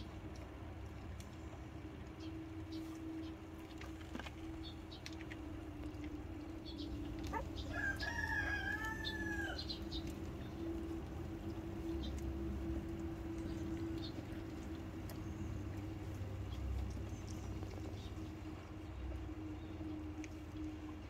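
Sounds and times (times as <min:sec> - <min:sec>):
steady hum: 0:00.0 - 0:21.0
rooster crowing: 0:07.3 - 0:09.8.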